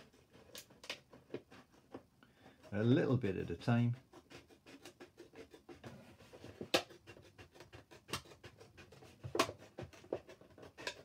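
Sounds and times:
scissors cutting plastic bottle: 0.0s - 1.5s, 6.6s - 11.0s.

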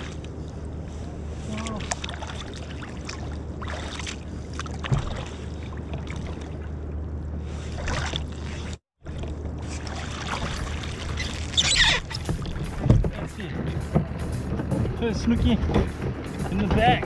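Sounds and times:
steady low rumble: 0.0s - 17.0s
water splashing against kayak: 0.0s - 17.0s.

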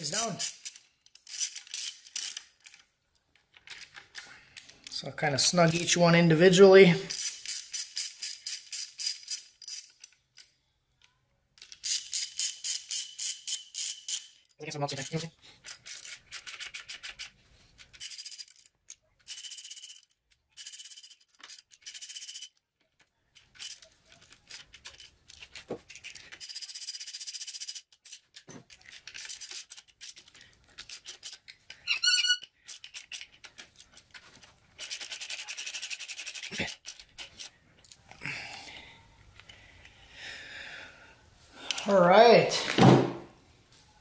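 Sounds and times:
hand ratchet clicking: 0.1s - 2.8s, 7.1s - 10.5s, 11.6s - 22.6s, 23.4s - 34.1s
brief squeak: 31.8s - 32.5s.

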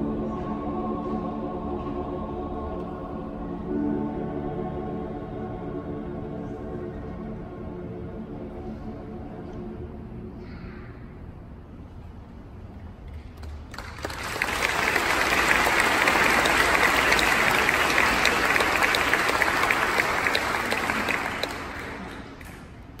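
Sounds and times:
audience applauding: 13.4s - 22.9s.

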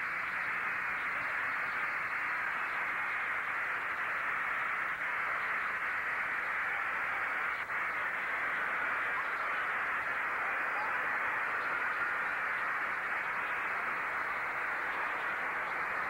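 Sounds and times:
large crowd cheering: 4.9s - 16.0s.

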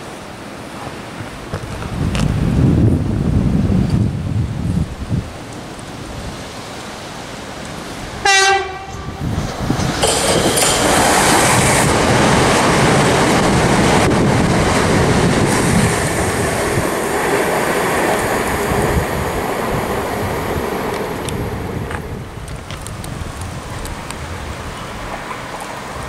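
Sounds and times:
train wheels rushing on rails: 5.2s - 26.0s.

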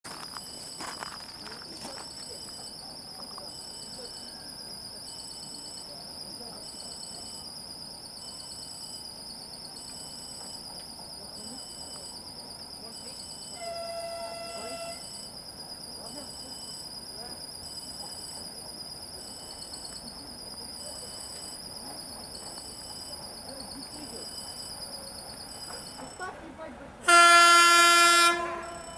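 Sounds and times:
horn sounding: 13.6s - 15.2s, 27.0s - 28.9s.

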